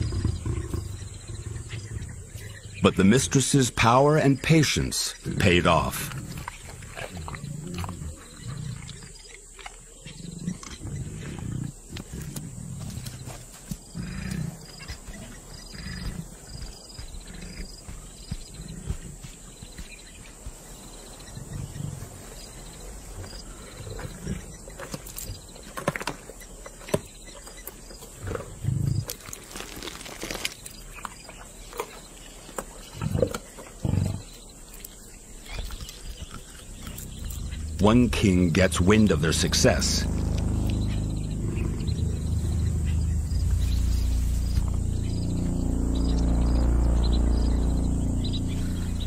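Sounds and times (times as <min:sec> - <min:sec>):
lions growling: 0:00.0 - 0:02.7, 0:05.3 - 0:19.8, 0:20.6 - 0:25.4, 0:32.9 - 0:34.4, 0:35.6 - 0:44.8
clicking and tearing of feeding: 0:29.0 - 0:31.1.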